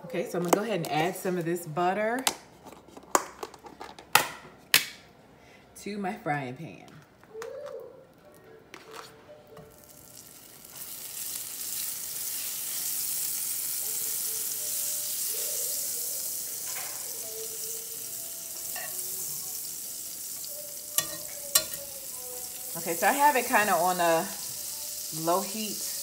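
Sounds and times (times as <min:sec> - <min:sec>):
butter sizzling in frying pan: 0:09.7 - 0:26.0.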